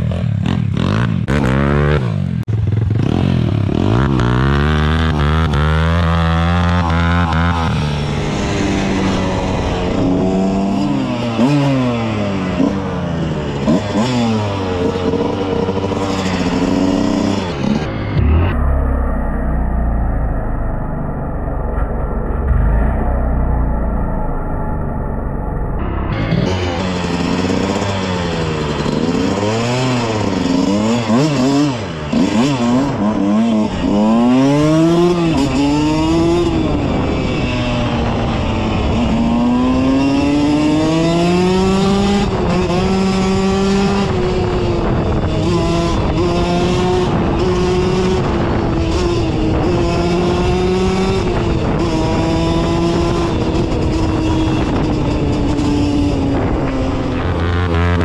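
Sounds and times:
dirt bike engine revving: 0:00.0 - 0:19.9, 0:25.8 - 0:58.0.

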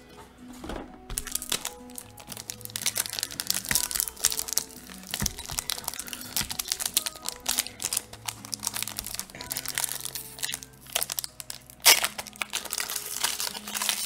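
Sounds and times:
plastic wrapper crinkling: 0:01.1 - 0:14.0.

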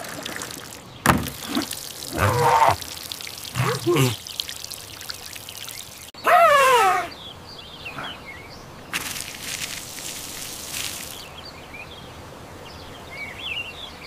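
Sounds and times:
small birds chirping: 0:00.9 - 0:02.8, 0:03.5 - 0:04.6, 0:05.6 - 0:12.0
crackling hiss: 0:08.9 - 0:11.3.

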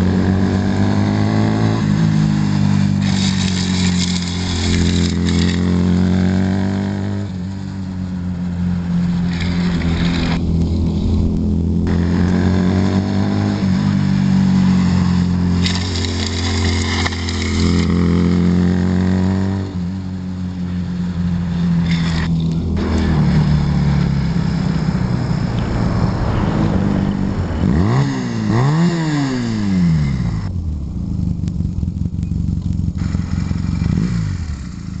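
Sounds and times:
motorcycle engine running: 0:00.0 - 0:26.0, 0:26.8 - 0:35.0
motorcycle engine revving: 0:00.0 - 0:35.0
knee slider scraping asphalt: 0:01.9 - 0:18.9, 0:20.6 - 0:30.4.

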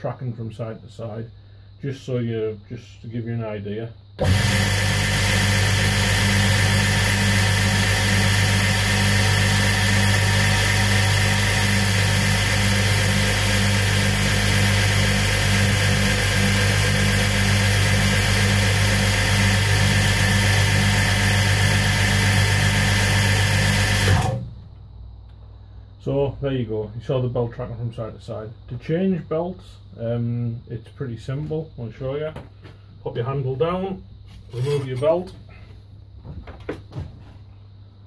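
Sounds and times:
belt grinder motor hum: 0:04.2 - 0:24.5.

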